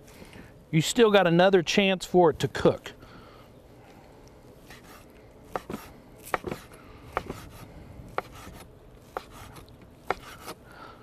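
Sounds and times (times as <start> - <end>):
knife chopping on wooden board: 4.7 - 10.6.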